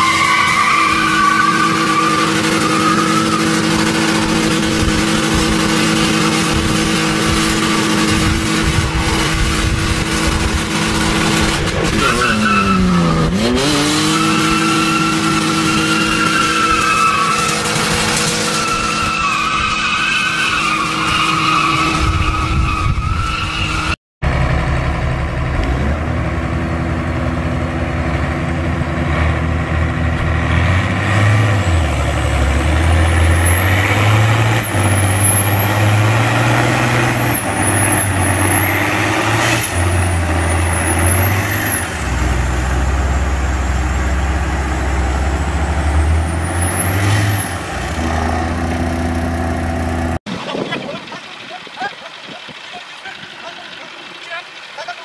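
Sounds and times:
tyres squealing: 0.0 - 9.3, 11.3 - 24.0, 32.7 - 42.4
diesel tractor engines labouring: 0.0 - 55.0.

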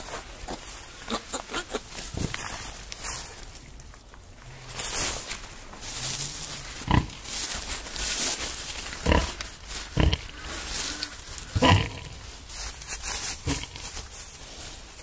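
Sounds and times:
straw rustling: 1.8 - 15.0
pig grunting: 6.8 - 7.2, 9.0 - 12.2, 13.4 - 13.9.

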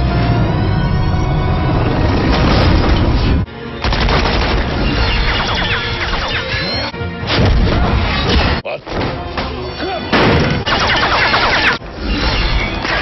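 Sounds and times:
dramatic background music: 0.0 - 13.0
gunfire: 3.8 - 6.4, 10.2 - 11.8.

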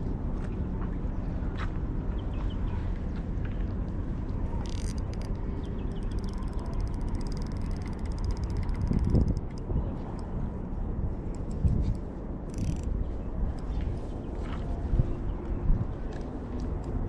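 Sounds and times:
wind buffeting microphone: 3.3 - 17.0
rapid high ticking: 5.9 - 9.6.

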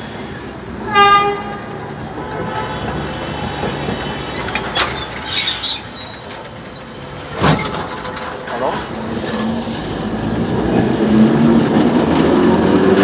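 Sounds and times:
tram clicks: 0.0 - 13.0
tram rumbling and rattling: 0.0 - 13.0
high-pitched wheel squeals: 4.3 - 8.7.

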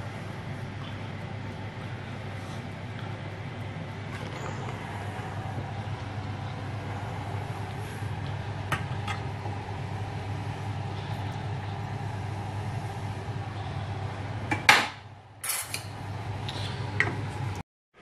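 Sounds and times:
low hum: 0.0 - 17.6.

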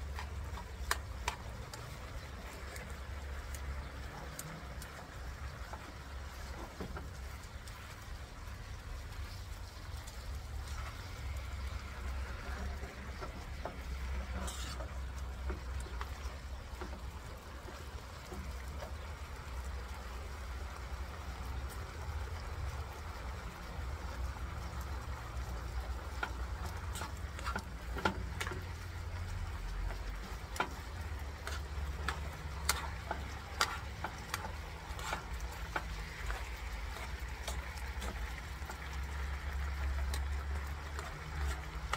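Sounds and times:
meat sizzling in a frying pan: 0.0 - 41.9
metal tongs scraping a pan: 14.0 - 15.2, 26.2 - 38.9.

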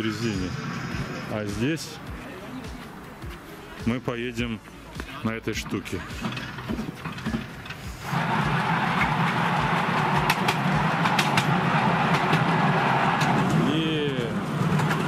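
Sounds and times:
miniature train low hum: 6.3 - 15.0
train wheels on rails: 6.3 - 15.0.

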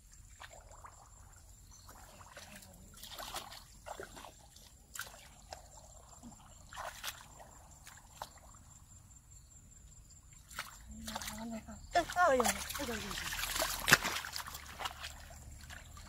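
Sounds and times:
sloshing through muddy water: 0.0 - 9.1, 10.2 - 16.0.

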